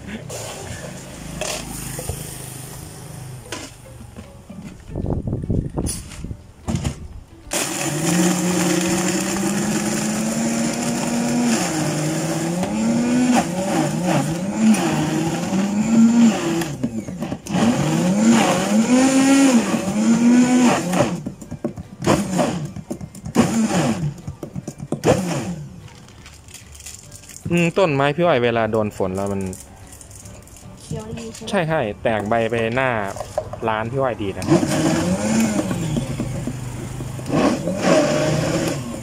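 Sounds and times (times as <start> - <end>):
blender running: 7.5 - 21.2, 23.4 - 24.2, 34.4 - 36.5, 37.2 - 39.0.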